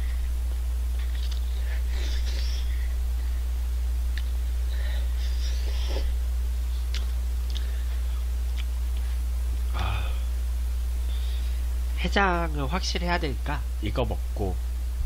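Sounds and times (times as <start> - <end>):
low electrical hum: 0.0 - 15.0
sharp breathing: 1.4 - 3.4, 4.7 - 6.1, 11.0 - 11.7.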